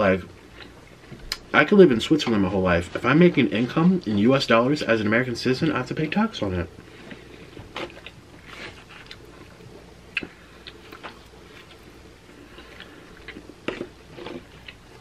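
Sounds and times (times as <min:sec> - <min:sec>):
person chewing: 0:00.4 - 0:01.5, 0:06.8 - 0:15.0.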